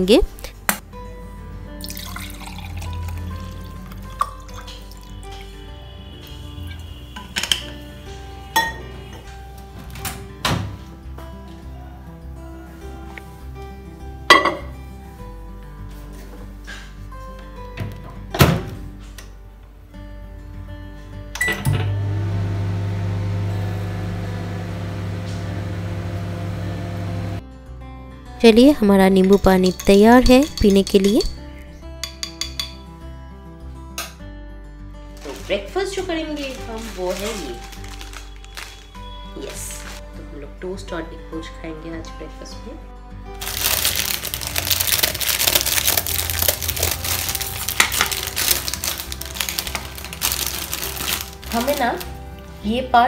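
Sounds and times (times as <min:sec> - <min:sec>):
microwave beep: 0:21.4 - 0:27.4
microwave humming: 0:21.4 - 0:27.4
plastic packet crinkling: 0:35.2 - 0:40.0, 0:43.4 - 0:52.2.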